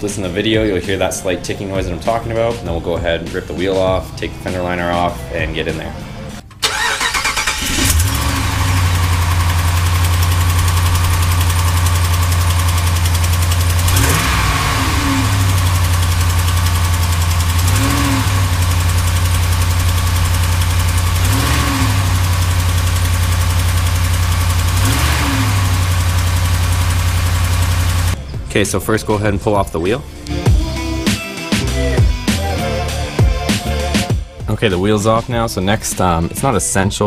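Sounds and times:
pickup truck engine idling: 6.5 - 29.3
exhaust leak ticking: 6.6 - 28.2.

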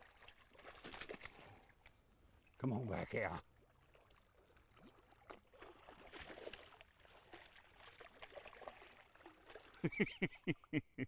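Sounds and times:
fish splashing in water: 0.0 - 1.6, 3.6 - 9.9.

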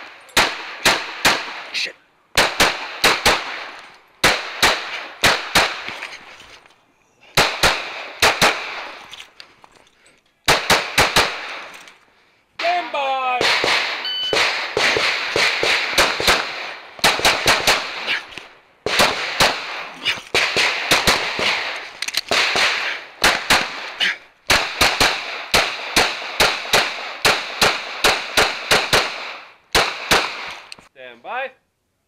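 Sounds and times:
pistol firing fast shots: 0.4 - 1.7, 2.4 - 5.9, 7.4 - 9.0, 10.5 - 11.6, 13.4 - 18.2, 18.8 - 30.7
short electronic beep: 14.0 - 14.4.

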